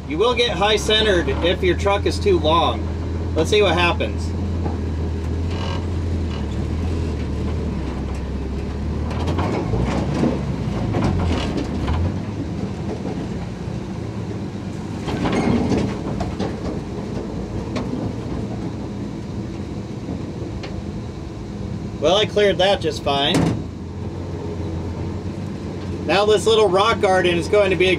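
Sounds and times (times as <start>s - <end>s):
truck engine running slowly: 0.0s - 27.9s
truck body clanking and rattling: 4.6s - 21.0s, 23.2s - 24.3s.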